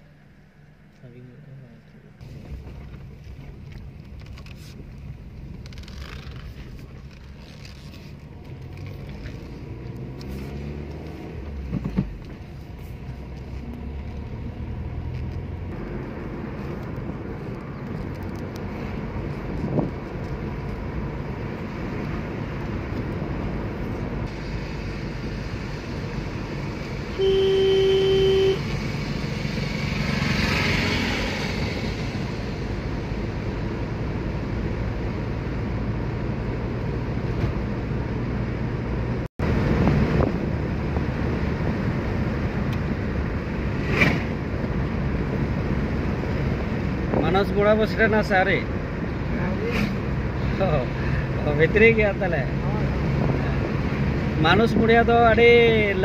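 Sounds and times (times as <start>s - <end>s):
car engine and tyre rumble: 0.0s - 56.0s
car horn toot: 27.1s - 28.7s.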